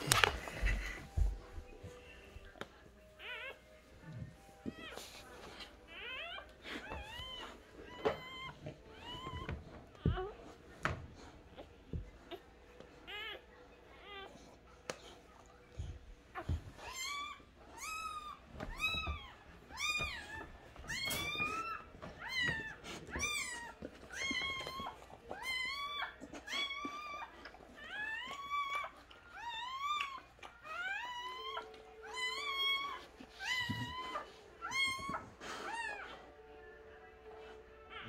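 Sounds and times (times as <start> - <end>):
puppy crying: 5.9 - 10.6, 13.0 - 14.4, 16.3 - 36.4, 37.8 - 38.0.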